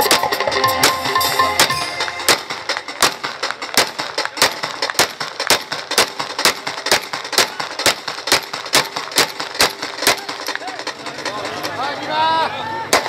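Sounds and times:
rifle firing single shots: 2.3s - 10.2s.

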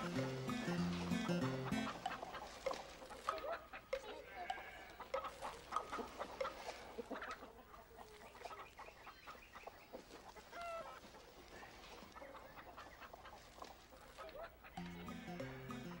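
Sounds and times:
chickens clucking: 0.0s - 16.0s.

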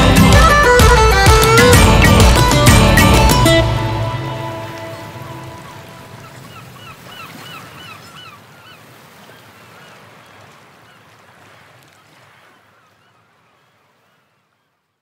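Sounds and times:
repeated honk-like lead figure: 0.0s - 5.7s
background music: 0.0s - 6.2s.

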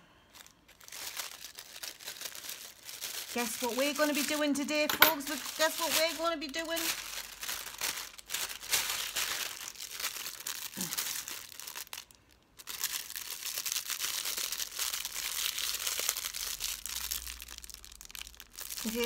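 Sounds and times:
plastic packaging crinkling: 0.3s - 19.0s.

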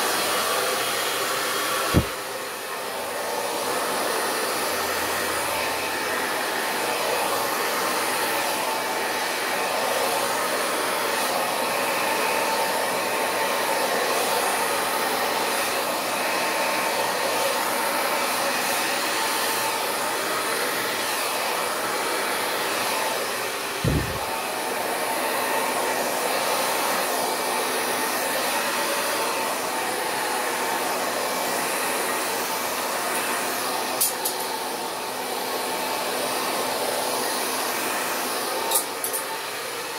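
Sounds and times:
hair dryer blowing: 0.0s - 39.9s
low thump: 1.9s - 2.2s.

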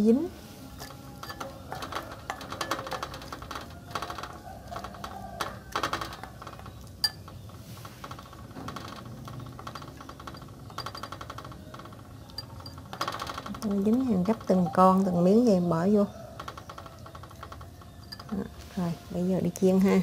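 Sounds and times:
batter scraping: 0.3s - 12.8s
spoon clinking in ceramic bowl: 0.8s - 3.2s.

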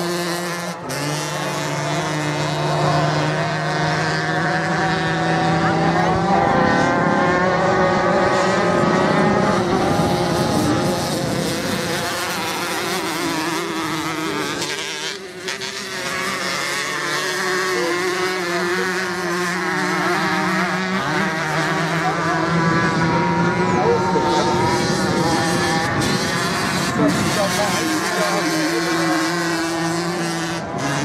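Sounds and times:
motorcycle engines revving: 0.0s - 31.0s.

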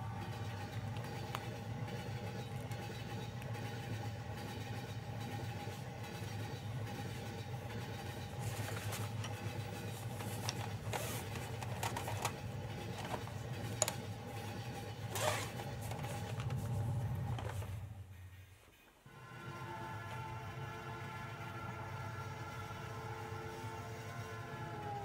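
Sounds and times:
train carriage rumble: 0.0s - 25.0s
paper rustling: 8.0s - 14.2s, 15.0s - 17.8s.

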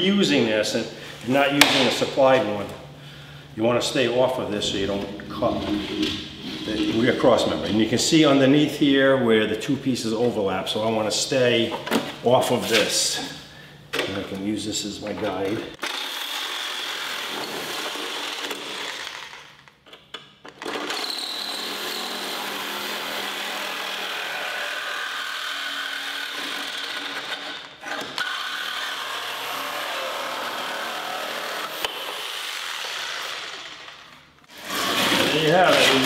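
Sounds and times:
reciprocating saw cutting sheet metal: 21.0s - 36.0s.

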